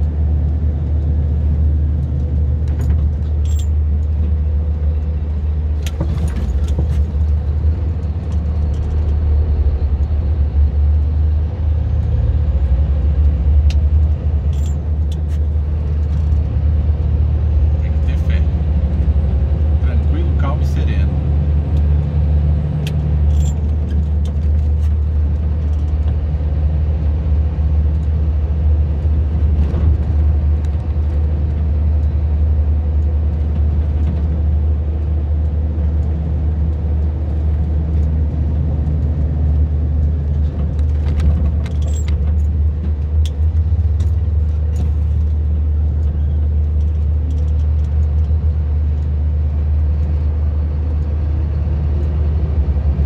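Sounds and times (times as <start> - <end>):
low engine drone: 0.0 - 53.0
road noise: 0.0 - 53.0
light clicks and rattles: 40.0 - 45.4.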